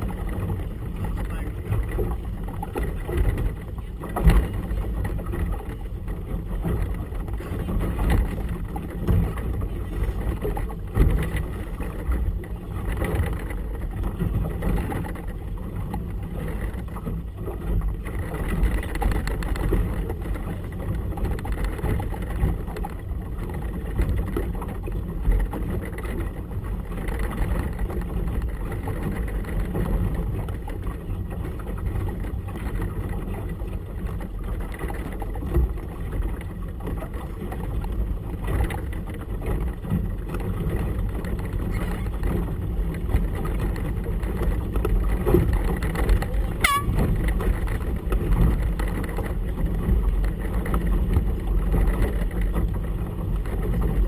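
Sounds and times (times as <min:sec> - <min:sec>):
motorboat engine rumble: 0:00.0 - 0:54.0
water slapping against hull: 0:00.0 - 0:54.0.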